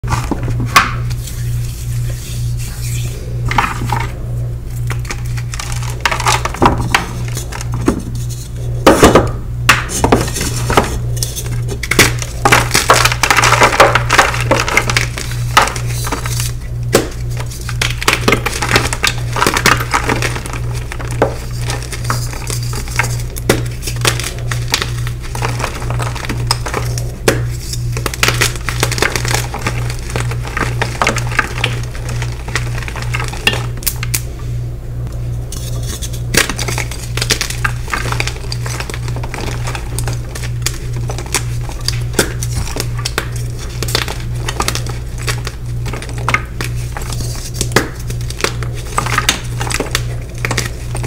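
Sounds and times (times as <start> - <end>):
pulsing low hum: 0.0 - 51.0
chalk blocks crunching and cracking: 4.9 - 34.2, 35.6 - 51.0.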